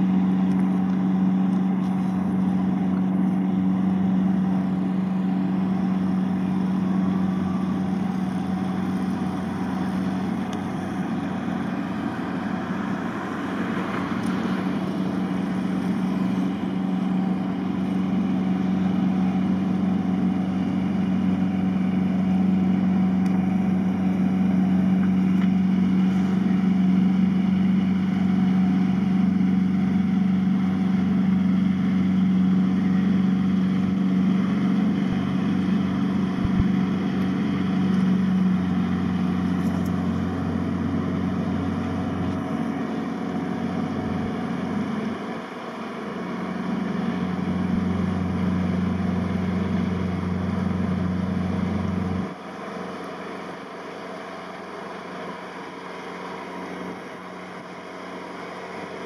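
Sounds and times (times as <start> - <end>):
tugboat engine running: 0.0 - 59.0.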